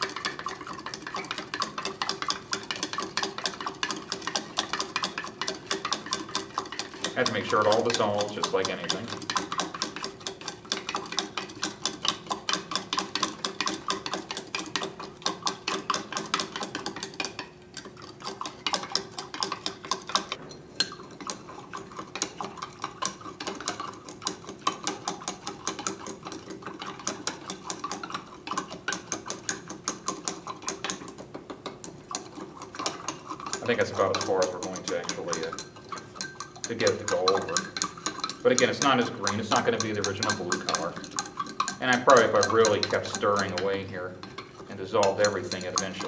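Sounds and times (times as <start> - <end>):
glass rod clinking against beaker: 33.7 - 44.4.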